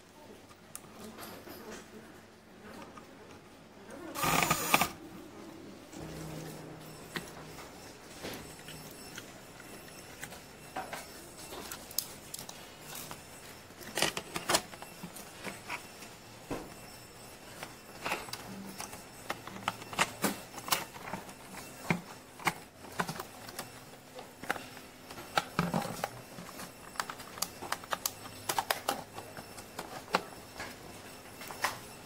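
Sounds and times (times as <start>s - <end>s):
plastic parts clicking and knocking: 13.8s - 16.9s, 17.5s - 30.8s.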